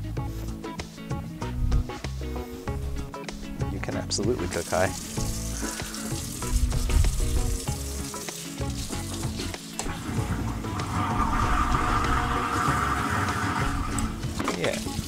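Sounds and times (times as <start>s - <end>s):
lo-fi background music: 0.0s - 15.0s
sauce bubbling and sizzling: 4.4s - 15.0s.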